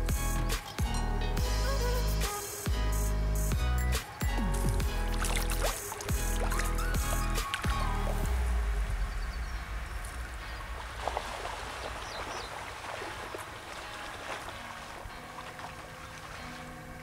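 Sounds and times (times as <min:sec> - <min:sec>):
pond water lapping: 0:04.0 - 0:17.0
small soft splashes: 0:05.1 - 0:08.4, 0:10.1 - 0:17.0.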